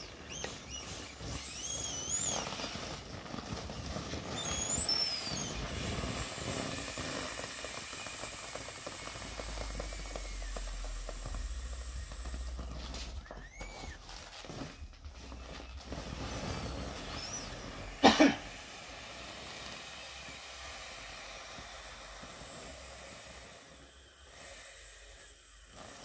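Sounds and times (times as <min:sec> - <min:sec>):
faint squeak: 0:00.0 - 0:03.1, 0:12.6 - 0:17.9
air hissing from inflatable toy: 0:00.0 - 0:26.0
vinyl rustling: 0:00.1 - 0:06.0, 0:07.1 - 0:18.0.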